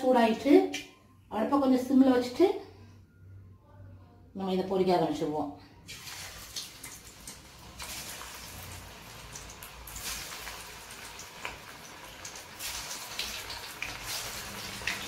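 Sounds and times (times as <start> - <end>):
crackles and pops of frying: 5.9 - 15.0
prawns sizzling in hot oil: 5.9 - 15.0.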